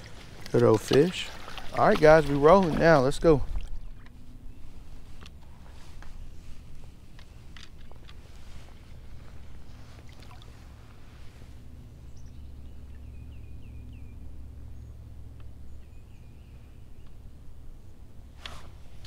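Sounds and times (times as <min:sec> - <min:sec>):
steady low rumble: 0:00.0 - 0:19.0
bird chirping: 0:12.0 - 0:15.0, 0:15.6 - 0:17.2.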